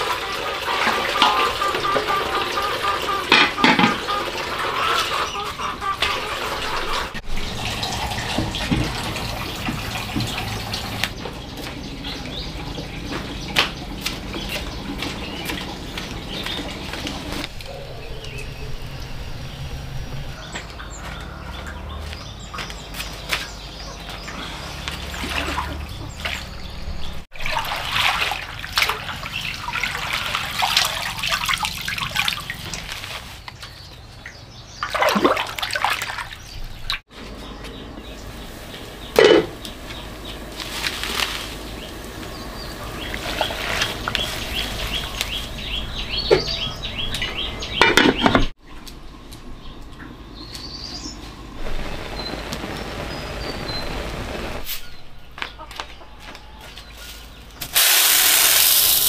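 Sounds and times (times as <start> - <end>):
water splashing and trickling: 0.0 - 17.8, 19.8 - 37.2, 38.1 - 48.6
birds chirping: 1.2 - 27.3, 31.3 - 57.6.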